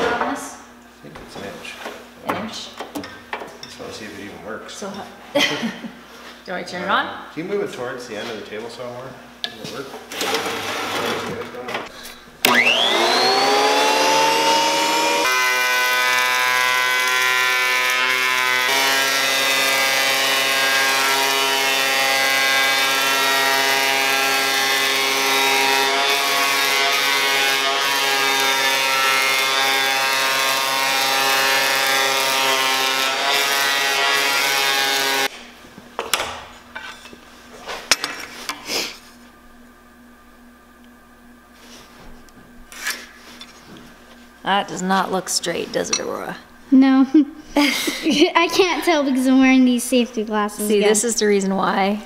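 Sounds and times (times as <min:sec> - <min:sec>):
thickness planer motor droning: 0:12.4 - 0:35.3.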